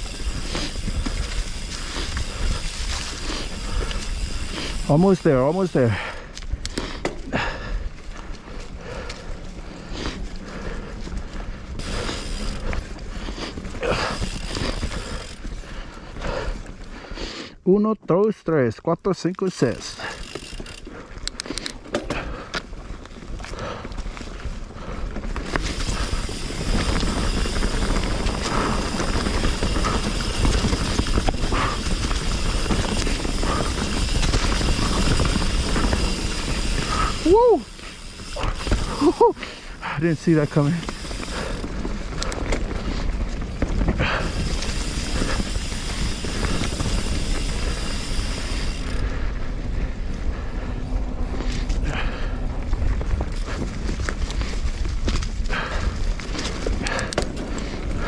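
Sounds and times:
bike tyres rolling on dirt: 0.0s - 58.0s
bike knocks and rattles: 6.9s - 7.4s, 21.8s - 22.5s.

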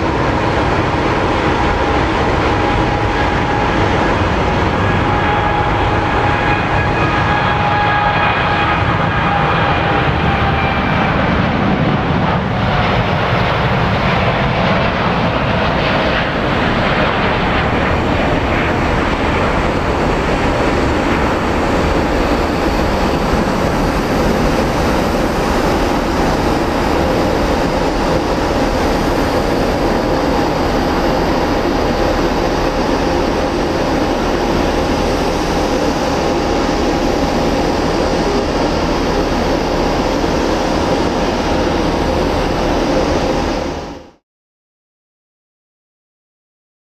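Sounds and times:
jet engine roar: 0.0s - 44.2s
whining fan tones: 14.8s - 44.1s.

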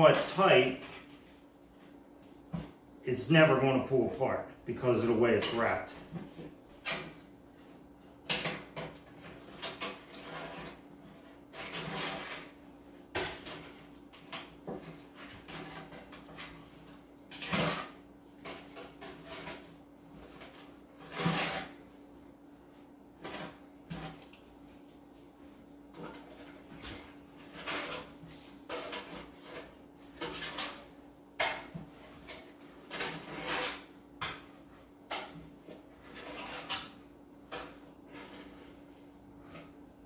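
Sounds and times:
wire scraping on rope: 9.4s - 12.5s, 32.1s - 34.0s, 35.8s - 39.8s.

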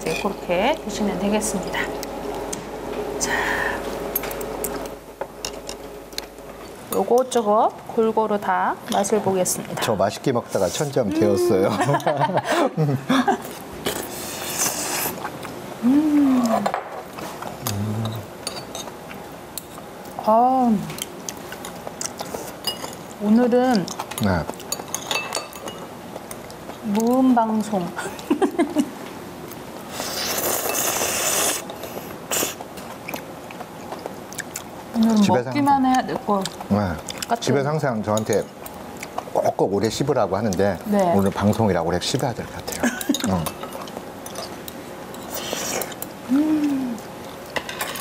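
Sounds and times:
person eating: 13.4s - 19.9s, 29.5s - 35.4s, 42.7s - 47.6s
chewing and mouth noises: 21.0s - 23.1s, 29.4s - 35.3s.

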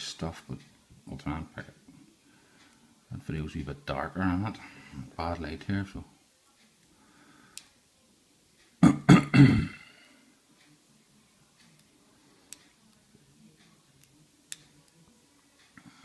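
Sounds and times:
man clearing his throat: 8.8s - 9.9s.

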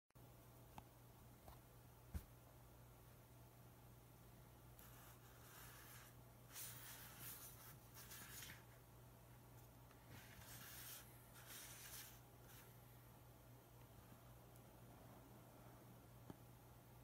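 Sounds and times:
steady low hum: 0.2s - 17.0s
hand rubbing cardboard box: 10.1s - 12.7s.

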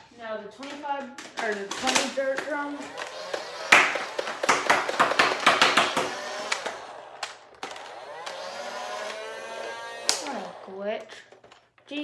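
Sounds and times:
plastic toy blaster clicking: 5.8s - 11.6s.

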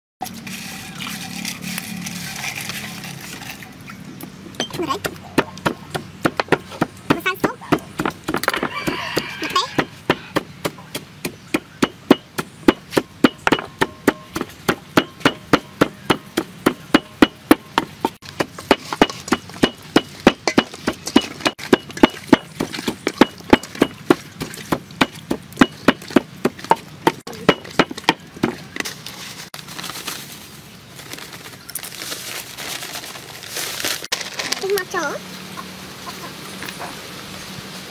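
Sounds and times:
sharp evenly spaced knocks: 4.6s - 9.0s, 9.8s - 28.6s.

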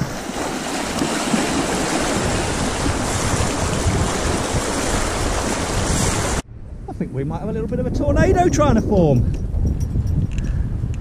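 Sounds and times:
river water rushing and splashing: 0.0s - 6.4s
wind rumbling on microphone: 0.0s - 11.0s.

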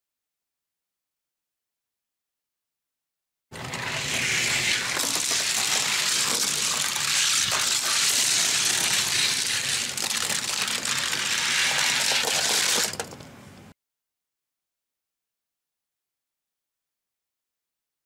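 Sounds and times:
toy cars rattling down track: 3.6s - 13.3s.

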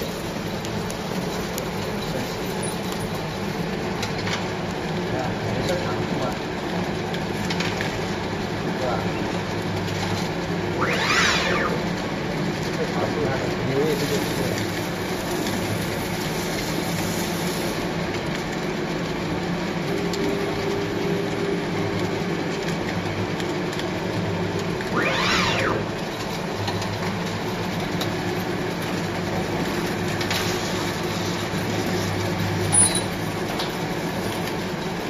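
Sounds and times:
machine humming and rattling: 0.0s - 35.0s
brief rising and falling whine: 10.7s - 12.3s, 24.8s - 26.5s.

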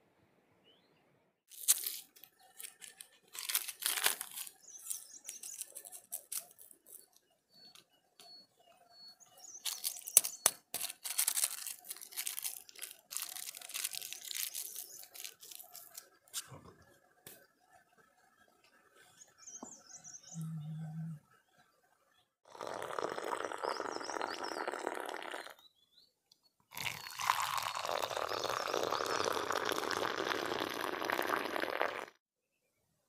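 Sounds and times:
packets and nylon rustling: 1.5s - 7.2s, 9.6s - 16.0s.

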